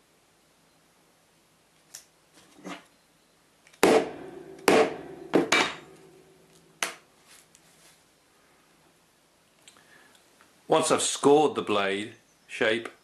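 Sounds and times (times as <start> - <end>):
hammer knocking on knife blade: 3.8 - 5.9.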